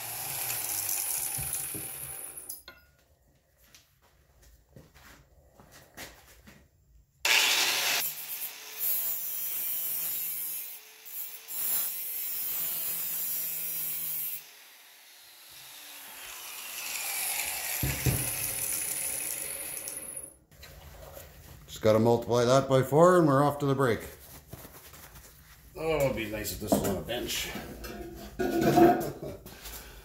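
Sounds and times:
angle grinder grinding steel: 0:00.0 - 0:02.6, 0:07.3 - 0:20.3.

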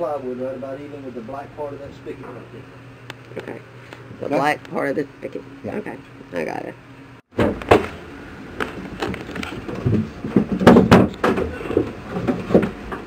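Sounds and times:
sharp knocks and clatter: 0:07.3 - 0:08.0, 0:08.6 - 0:13.0.

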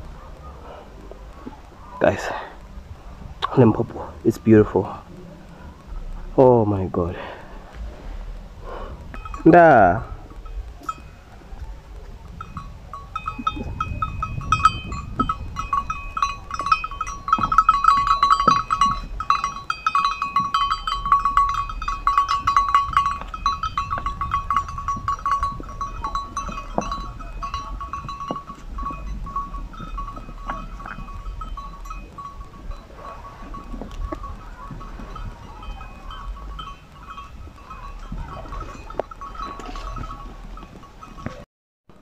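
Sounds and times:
goats moving over rocks: 0:00.0 - 0:42.0
small metal bell clinking: 0:09.1 - 0:11.6, 0:12.4 - 0:41.4.

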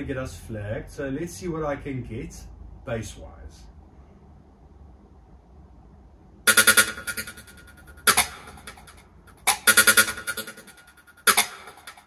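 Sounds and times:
electronic music drum hits: 0:06.5 - 0:12.0.

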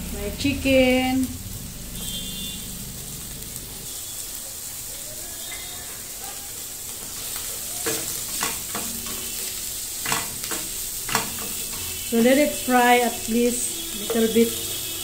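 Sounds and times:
food sizzling in oil: 0:00.0 - 0:15.0
spatula scraping pan: 0:06.8 - 0:15.0.

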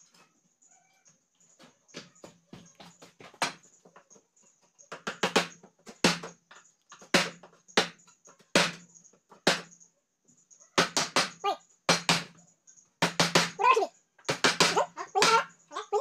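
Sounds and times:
hammer striking chisel into wood: 0:08.6 - 0:08.8, 0:09.4 - 0:09.7, 0:10.8 - 0:12.4, 0:13.0 - 0:13.6, 0:14.3 - 0:15.4.

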